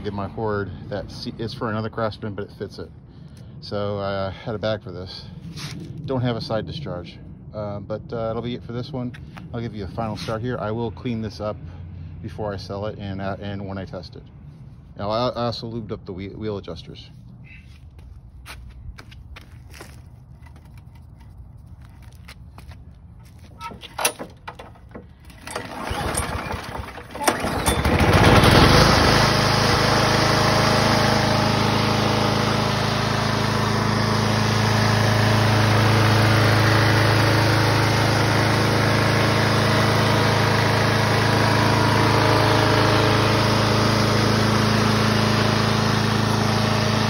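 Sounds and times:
lawn mower engine running: 23.2 - 47.0
lawn mower pull-start: 23.2 - 47.0.

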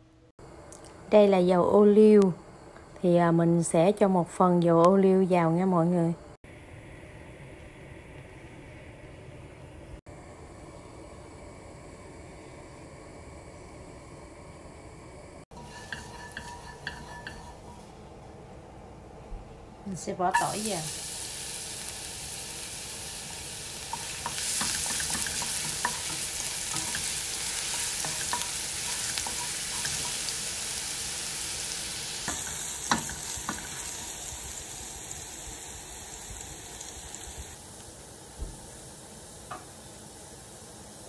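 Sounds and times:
garlic sizzling in oil: 10.6 - 18.2, 20.0 - 41.0
wooden spatula knocking on pan: 23.9 - 27.0.

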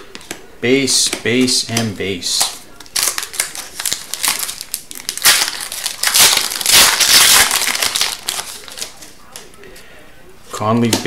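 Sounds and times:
foil wrapper crinkling: 2.4 - 9.4.

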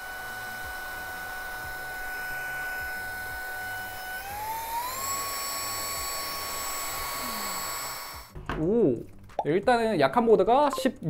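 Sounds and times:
electric duster motor whine: 0.0 - 8.4.

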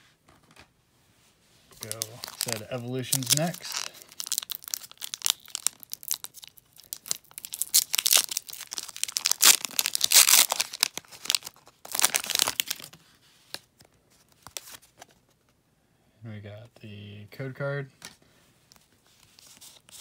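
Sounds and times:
foil wrapper tearing and crinkling: 1.8 - 13.0.

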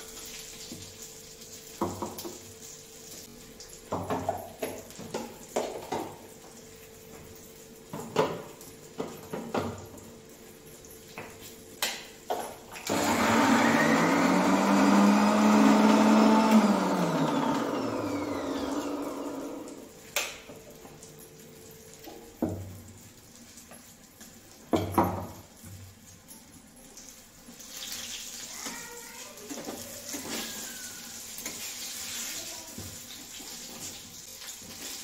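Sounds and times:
electric mixer grinder motor: 12.9 - 19.9.

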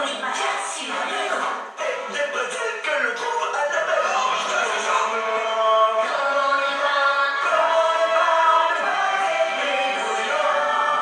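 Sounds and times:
musical accompaniment: 1.7 - 11.0
cartoon characters singing in chorus: 4.2 - 11.0.

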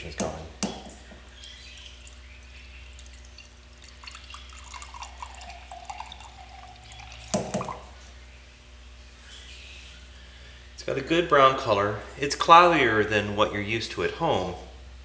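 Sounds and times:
beer trickling into glass jar: 1.4 - 8.0.

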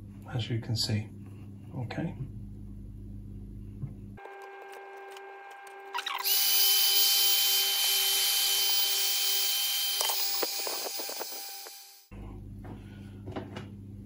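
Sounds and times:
heat gun blowing with fan whine: 6.1 - 12.0.

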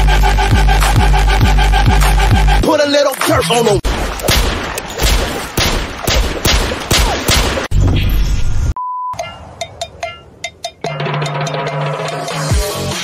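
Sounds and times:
rapid gunfire: 3.9 - 7.7
short steady beep: 8.8 - 9.4.

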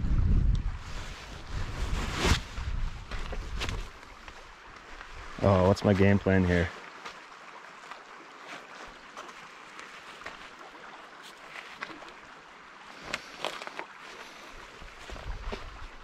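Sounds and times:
river water rushing: 3.9 - 16.0.

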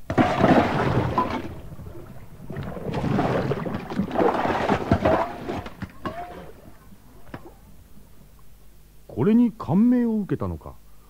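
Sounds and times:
water splashing and churning: 0.0 - 7.4.

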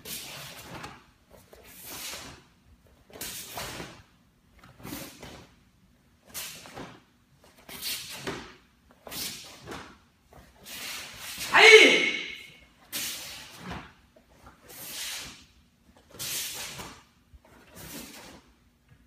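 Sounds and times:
staff swishing through air: 0.0 - 2.5, 6.2 - 18.4.

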